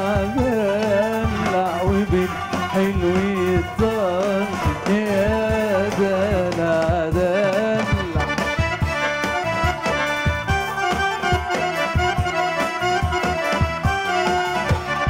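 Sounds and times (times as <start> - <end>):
band playing held notes: 0.0 - 15.0
steady percussion beat: 0.0 - 15.0
wavering melody line: 0.0 - 15.0.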